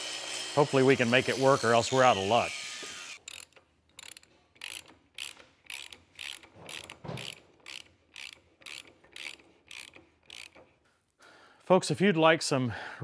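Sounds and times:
ratchet wrench clicking: 0:03.1 - 0:10.7.

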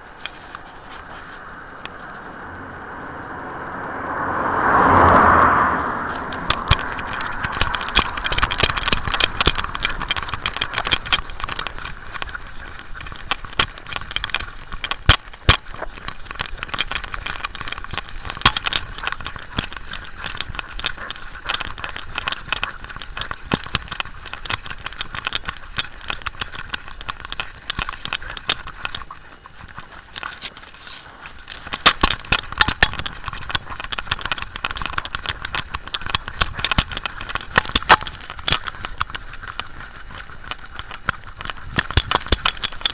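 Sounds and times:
sharp clicks: 0:04.6 - 0:42.9.

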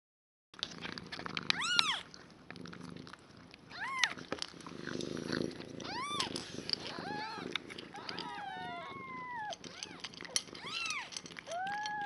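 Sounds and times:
steady purring: 0:00.6 - 0:12.0
kittens mewing: 0:05.1 - 0:12.0.

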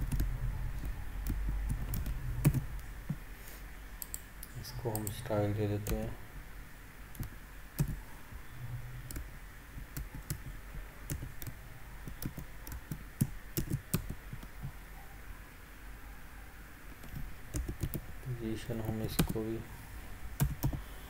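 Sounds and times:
typing on computer keyboard: 0:00.0 - 0:02.8, 0:07.2 - 0:08.0, 0:09.1 - 0:14.5, 0:17.0 - 0:18.0, 0:18.7 - 0:19.4, 0:20.4 - 0:20.8.

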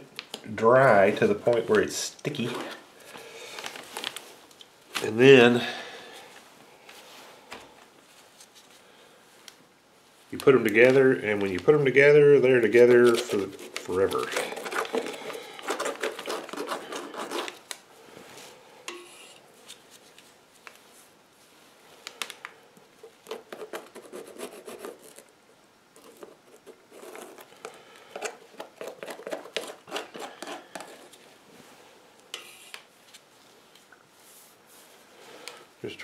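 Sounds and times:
wooden stick scraping glue on rubber: 0:13.0 - 0:17.6.

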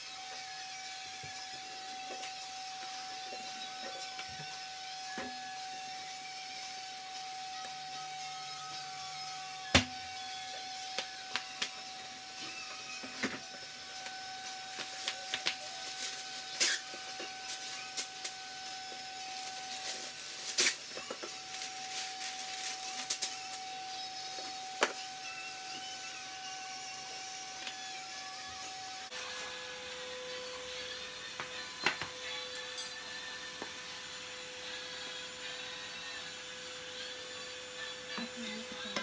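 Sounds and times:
baking paper rustling: 0:14.6 - 0:18.4, 0:19.0 - 0:23.6.

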